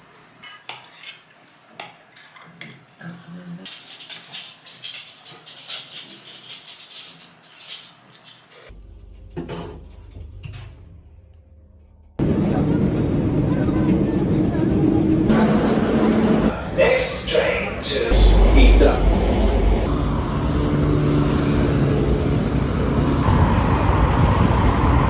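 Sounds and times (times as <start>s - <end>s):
cutlery clinking on plates: 0.4s - 3.0s, 3.7s - 8.7s.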